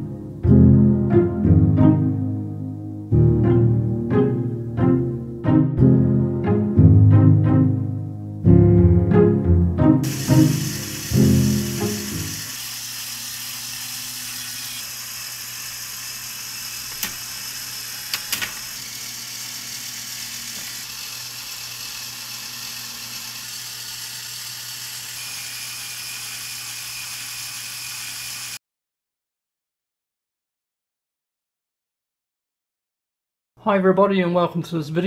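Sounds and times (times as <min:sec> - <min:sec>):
gear mechanism whirring: 0:10.0 - 0:28.6.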